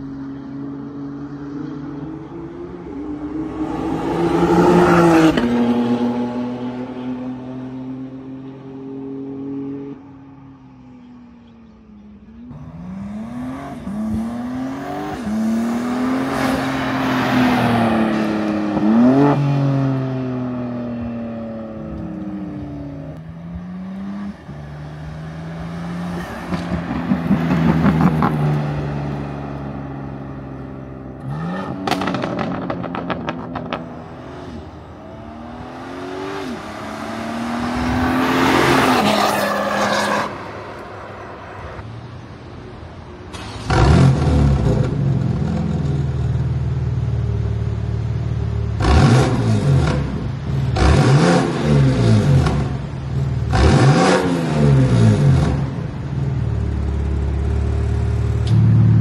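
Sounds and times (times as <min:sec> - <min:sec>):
exhaust pops and crackles: 0:31.8 - 0:34.0.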